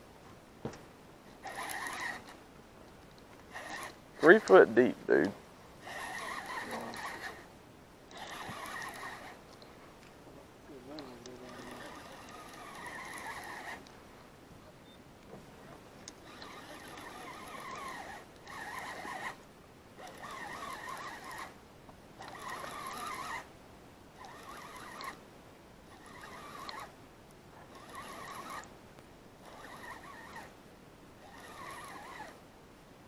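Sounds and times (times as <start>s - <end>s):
fishing reel gears whirring: 1.4s - 2.4s, 3.5s - 7.5s, 8.1s - 9.5s, 10.9s - 13.9s, 16.1s - 19.4s, 20.0s - 23.5s, 24.2s - 25.2s, 25.9s - 27.0s, 27.6s - 28.7s, 29.4s - 30.6s, 31.2s - 32.4s.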